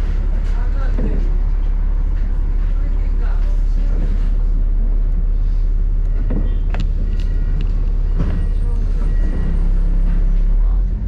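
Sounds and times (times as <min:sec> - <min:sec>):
bus engine and road rumble: 0:00.0 - 0:11.0.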